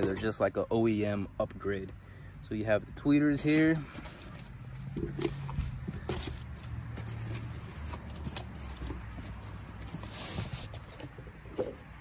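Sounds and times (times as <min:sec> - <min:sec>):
cardboard rustling: 0:00.0 - 0:00.4, 0:03.4 - 0:11.9.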